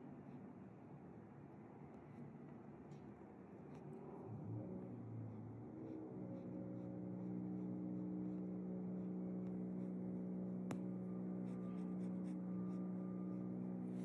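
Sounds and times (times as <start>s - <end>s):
low electrical hum: 0.0s - 14.0s
paintbrush brushing on canvas: 10.7s - 12.9s.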